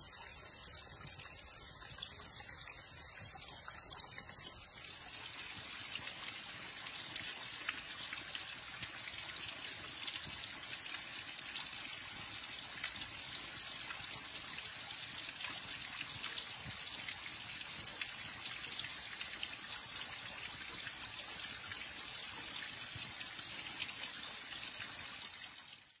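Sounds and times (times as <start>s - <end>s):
small water drips: 0.0s - 26.0s
waterfall trickling and splashing: 0.0s - 26.0s.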